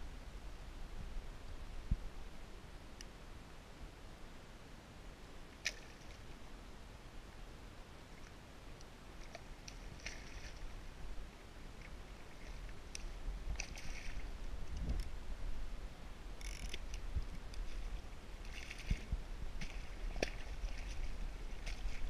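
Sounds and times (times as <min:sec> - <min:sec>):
wind rumble on microphone: 0:00.0 - 0:02.9, 0:09.9 - 0:22.0
water splashing around kayak: 0:09.2 - 0:10.9, 0:11.7 - 0:15.0, 0:16.4 - 0:22.0.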